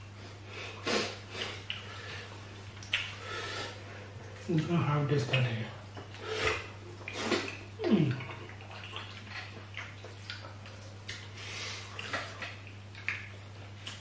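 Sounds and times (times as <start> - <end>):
wet squelching and chewing: 1.3 - 14.0.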